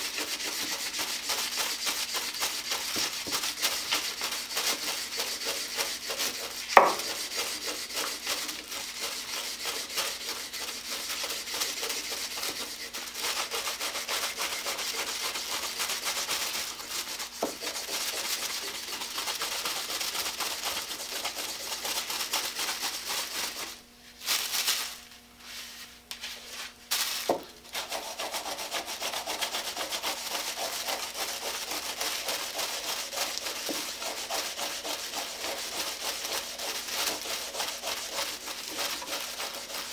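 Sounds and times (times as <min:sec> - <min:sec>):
rag rubbing wood: 0:00.0 - 0:23.8, 0:25.4 - 0:39.9
sharp knock: 0:06.8 - 0:07.0.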